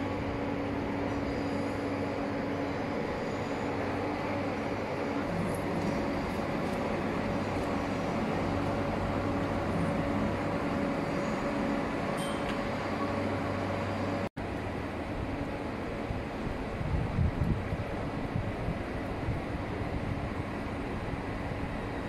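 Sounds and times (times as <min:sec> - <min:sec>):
continuous noise: 0:00.0 - 0:22.0
vehicle mechanical hum: 0:00.0 - 0:22.0.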